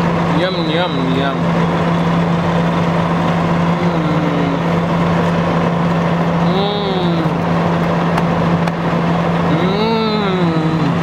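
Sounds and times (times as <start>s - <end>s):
car cabin hum and rumble: 0.0s - 11.0s
person humming: 3.7s - 4.7s, 6.4s - 7.4s, 9.5s - 11.0s.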